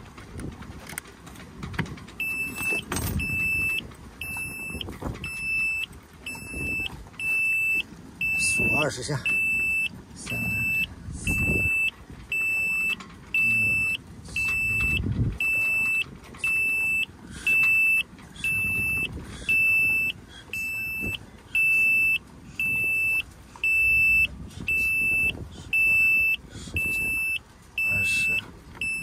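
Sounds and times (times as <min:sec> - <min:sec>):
electronic warning buzzer beeping: 0:02.2 - 0:29.0.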